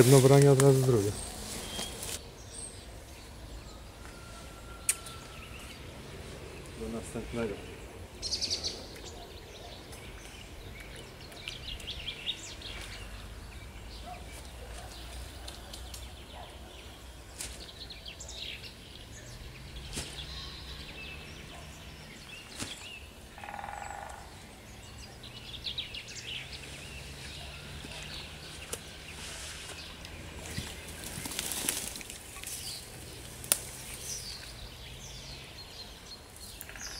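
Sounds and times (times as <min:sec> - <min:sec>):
low outdoor background noise: 0:00.0 - 0:36.9
small birds chirping: 0:00.0 - 0:36.9
lower-pitched bird call: 0:03.7 - 0:05.8.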